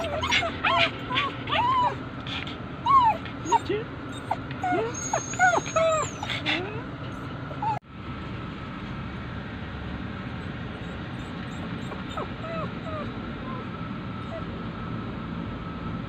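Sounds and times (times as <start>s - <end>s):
dogs whining: 0.0s - 7.8s, 10.4s - 14.6s
steady background hum: 0.0s - 16.0s.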